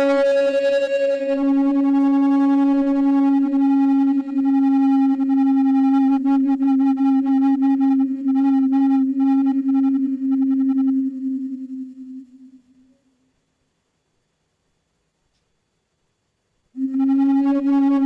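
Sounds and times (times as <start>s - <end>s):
flute long low note: 0.0s - 13.1s, 16.8s - 18.0s.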